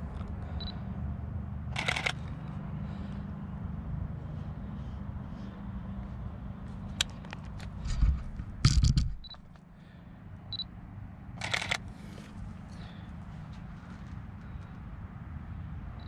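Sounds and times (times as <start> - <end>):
steady low hum: 0.0 - 16.0
camera shutter clicks: 1.8 - 2.2, 11.4 - 11.8
camera handling clicks and knocks: 7.0 - 9.6.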